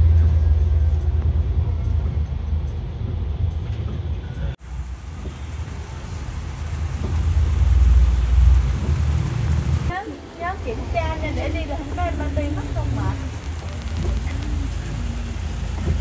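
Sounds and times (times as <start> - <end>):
bus engine rumble: 0.0 - 16.0
tyres on wet road: 0.0 - 16.0
heavy rain hissing: 4.6 - 16.0.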